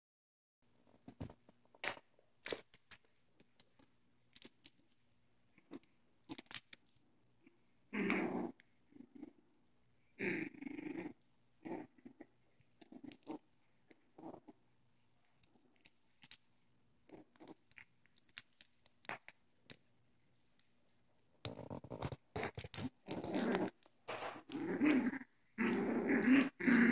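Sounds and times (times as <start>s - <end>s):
puppies growling: 7.9s - 9.4s, 10.2s - 14.6s, 21.7s - 26.9s.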